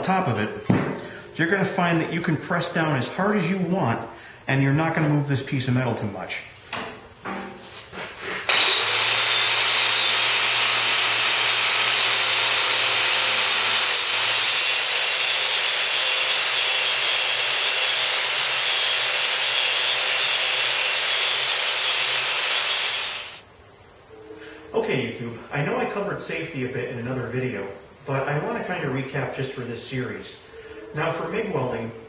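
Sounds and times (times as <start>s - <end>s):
angle grinder grinding steel: 8.5s - 23.4s.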